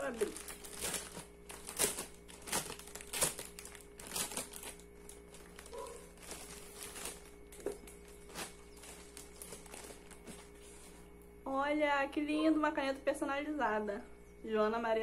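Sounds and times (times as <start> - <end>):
plastic bag crinkling: 0.0 - 11.2.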